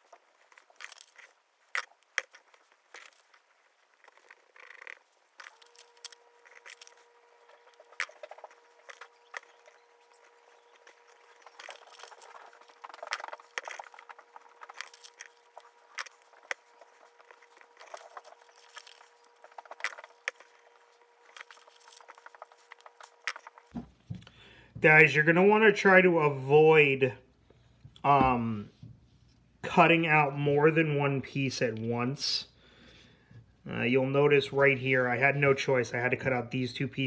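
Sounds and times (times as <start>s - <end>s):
paper rustling and clicking: 0.0s - 24.0s.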